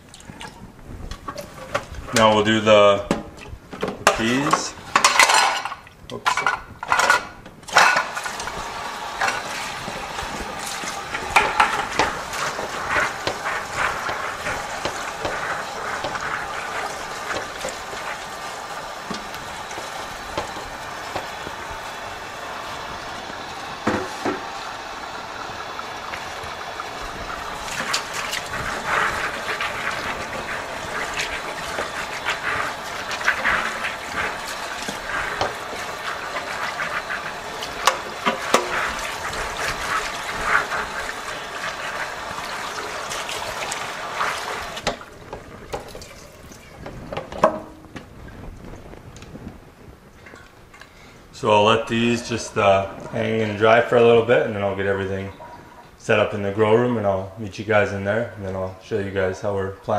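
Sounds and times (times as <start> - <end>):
water splashing into a bucket: 0.0 - 2.2, 7.7 - 48.5
water running from a hose: 7.7 - 47.2.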